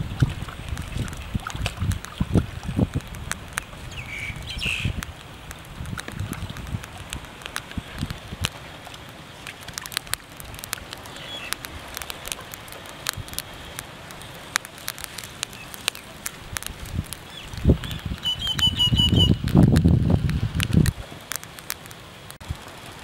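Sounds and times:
bird chirping: 3.9s - 5.0s, 17.3s - 19.4s
hands handling fish clicks and taps: 5.0s - 18.7s.

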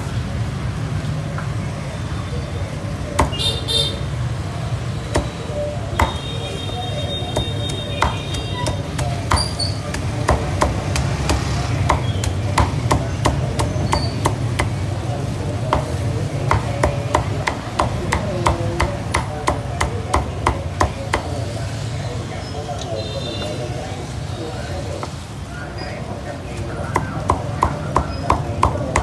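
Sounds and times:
cleaver chopping meat on a block: 3.2s - 3.5s, 5.1s - 6.3s, 7.2s - 21.4s, 26.6s - 29.0s.

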